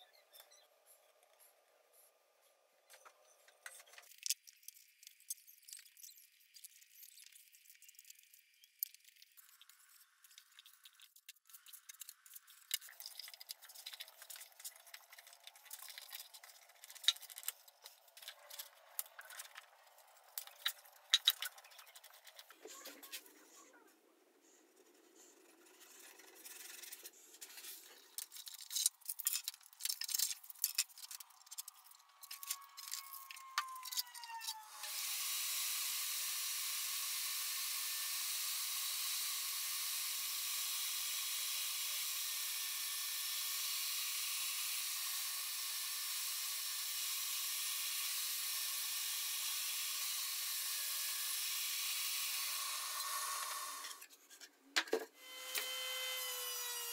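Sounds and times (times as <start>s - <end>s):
table saw running: 32.8s - 54.0s, 55.2s - 56.9s.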